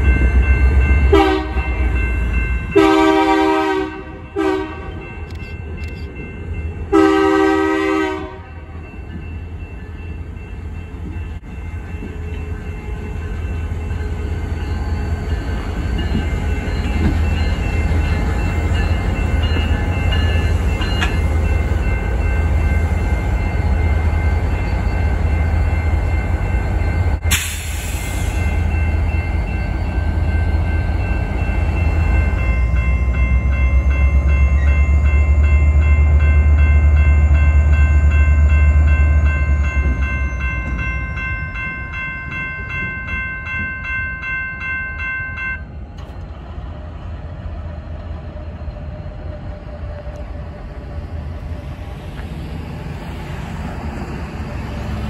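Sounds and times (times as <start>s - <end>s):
diesel locomotive engine rumbling: 0.0s - 55.0s
bell ringing: 28.0s - 45.7s.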